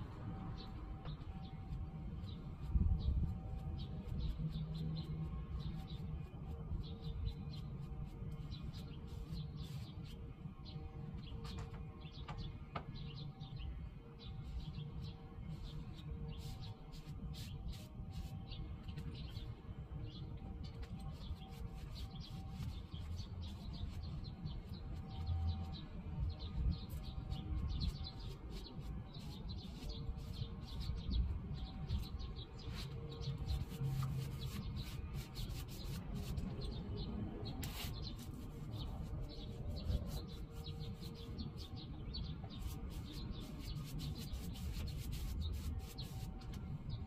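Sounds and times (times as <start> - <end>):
brush scrubbing wood: 32.6 - 36.7, 37.6 - 41.7, 42.5 - 46.6.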